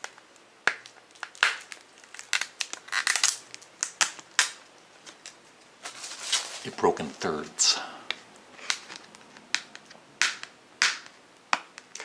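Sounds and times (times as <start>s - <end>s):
sticker peeling off plastic: 0.7s - 5.4s.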